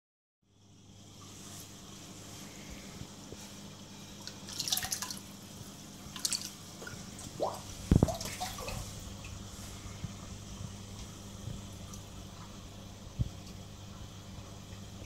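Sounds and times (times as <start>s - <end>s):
steady low hum: 0.4s - 15.0s
water splashing: 4.2s - 5.3s, 6.1s - 9.8s.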